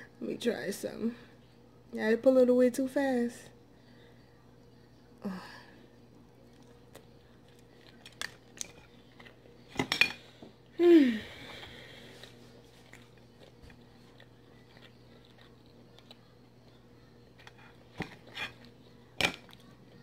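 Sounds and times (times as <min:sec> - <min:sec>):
low steady hum: 0:00.0 - 0:20.0
crab shells cracking against a plate: 0:06.9 - 0:10.2, 0:17.4 - 0:19.6.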